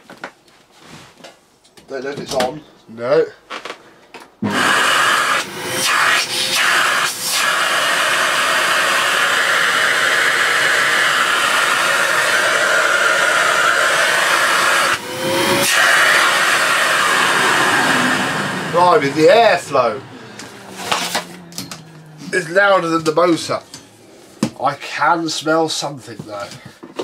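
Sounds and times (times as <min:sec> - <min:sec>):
vacuum cleaner running: 0:04.4 - 0:24.5.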